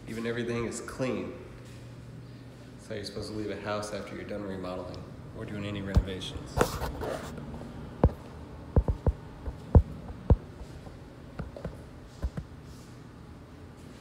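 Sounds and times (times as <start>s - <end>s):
footsteps on hard floor: 8.8s - 12.9s.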